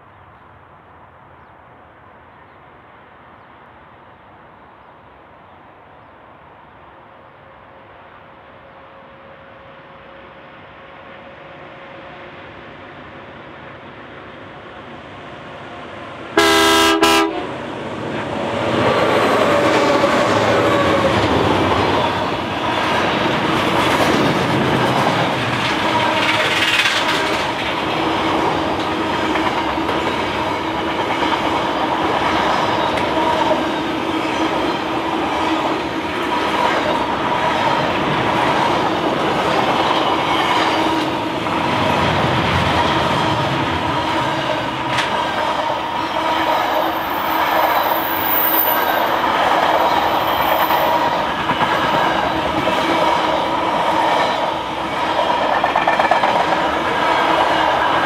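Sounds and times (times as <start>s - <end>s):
diesel locomotives passing: 0.0s - 58.0s
train wheels on rails: 8.7s - 58.0s
train horn blast: 16.4s - 17.6s.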